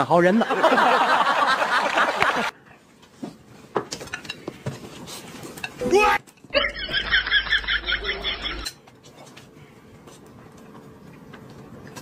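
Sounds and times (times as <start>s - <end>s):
chopsticks and dishes clinking: 3.9s - 4.6s, 8.5s - 9.4s.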